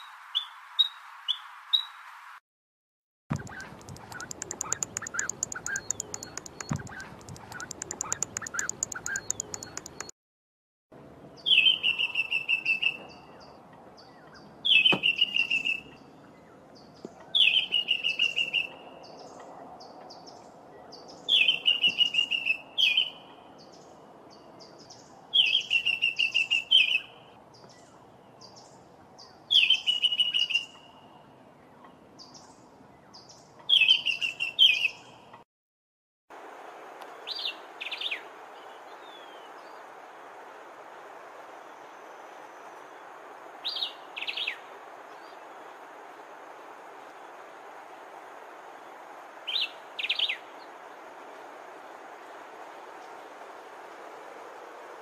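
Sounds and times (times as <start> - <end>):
bird singing repeated high notes: 3.3 - 10.1
faint bird notes: 3.3 - 10.1
goose high-pitched pulsing: 3.3 - 10.1.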